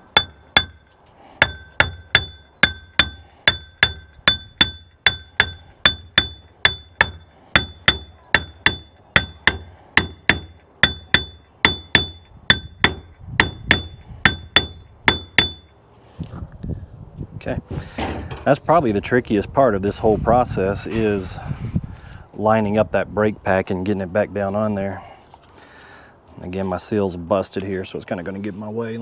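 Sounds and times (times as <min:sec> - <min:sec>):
hammer striking metal: 0:00.1 - 0:15.7.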